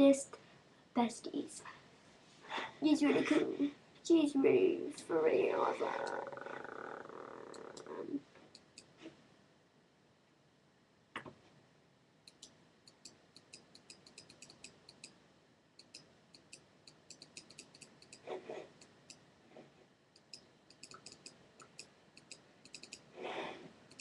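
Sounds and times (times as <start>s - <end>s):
soft rustle or breath: 1.6s - 2.9s, 23.1s - 23.8s.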